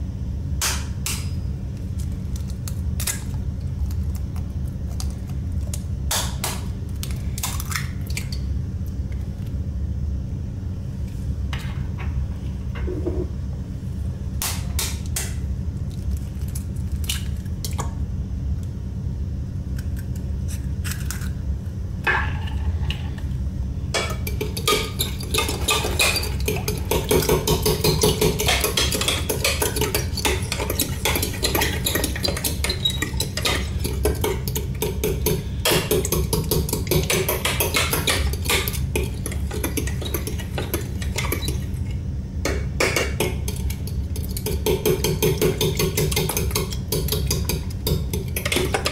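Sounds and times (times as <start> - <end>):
steady low hum: 0.0 - 48.9
fork beating eggs in glass jug: 24.0 - 48.9.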